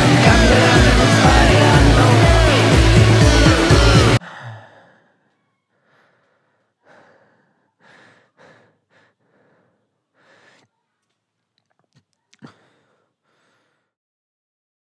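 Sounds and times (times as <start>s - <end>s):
loud music: 0.0s - 4.2s
man breathing heavily: 2.6s - 5.2s, 5.8s - 10.7s, 12.4s - 14.0s.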